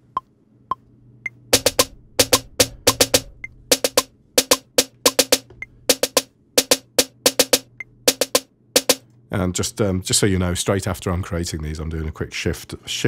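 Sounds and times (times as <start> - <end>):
snare drum hits: 1.6 - 9.0.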